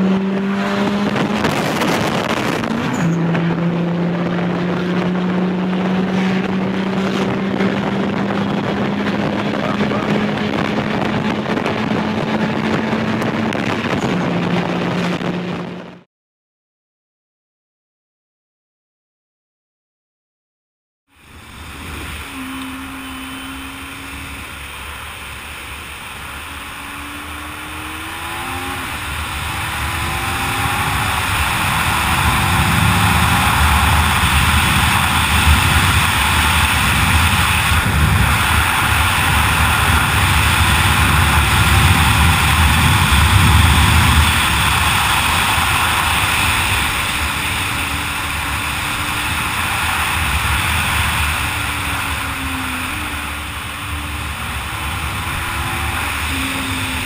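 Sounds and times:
motorcycle engine revving: 0.0s - 16.1s, 21.4s - 57.0s
wind rushing on microphone: 0.0s - 16.1s, 21.3s - 57.0s.

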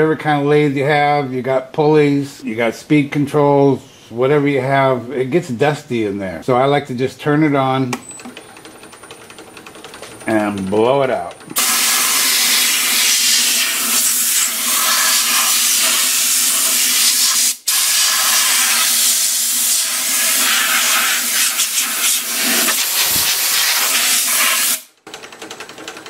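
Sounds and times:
compressed air gun hissing: 11.6s - 24.9s.

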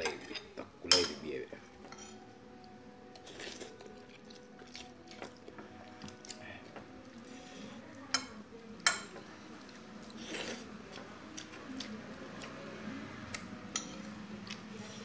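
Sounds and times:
person chewing food: 2.0s - 8.0s, 9.6s - 12.6s, 13.3s - 15.0s.

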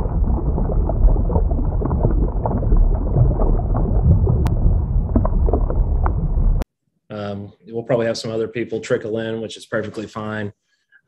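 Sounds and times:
bubbling pops: 0.0s - 6.6s
deep underwater rumble: 0.0s - 6.6s.

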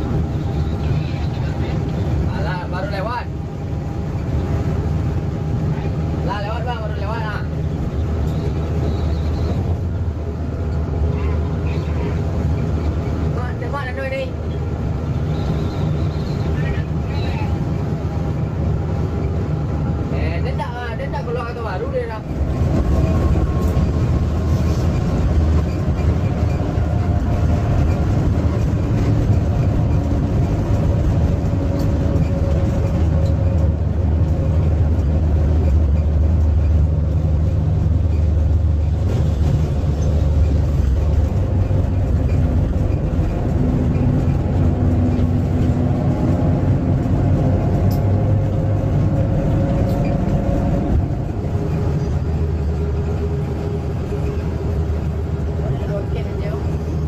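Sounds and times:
bus diesel engine droning: 0.0s - 57.0s.

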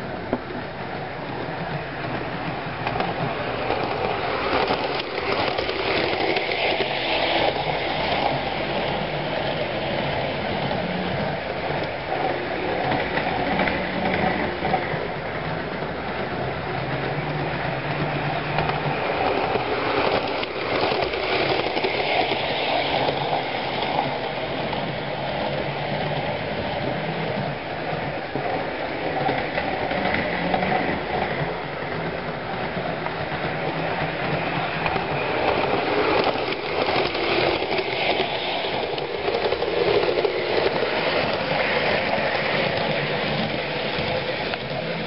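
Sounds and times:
model train motor whirring on rails: 3.8s - 14.6s.

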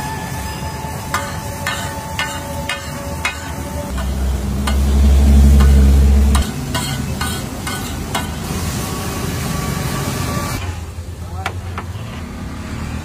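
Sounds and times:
food sizzling on griddle: 0.0s - 4.1s, 6.4s - 10.8s
metal spatula scraping griddle: 0.6s - 8.8s
loud low rumble: 3.8s - 7.2s.

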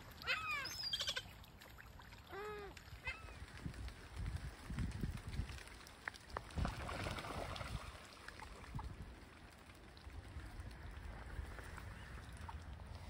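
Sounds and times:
soft hiss of water: 0.0s - 13.0s
wind rumble on microphone: 3.0s - 13.0s.

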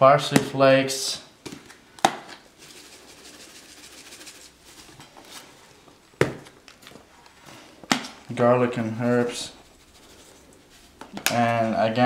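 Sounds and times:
spice jar rattling: 2.6s - 5.1s.

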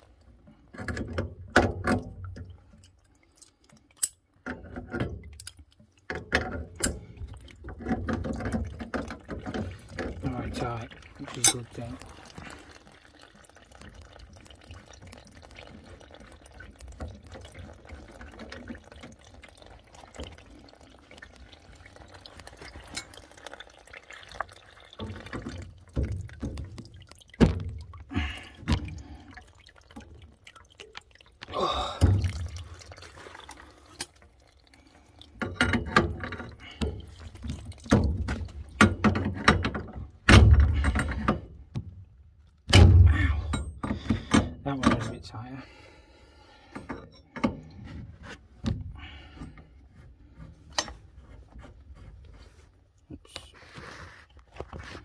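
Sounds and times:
water dripping and trickling: 0.0s - 55.0s.

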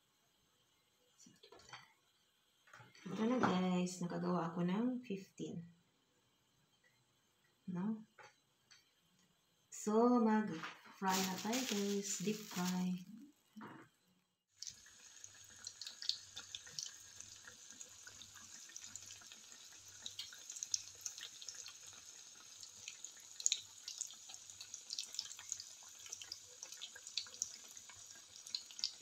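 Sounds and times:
spring rolls deep-frying in oil: 9.7s - 13.3s, 14.5s - 29.0s.

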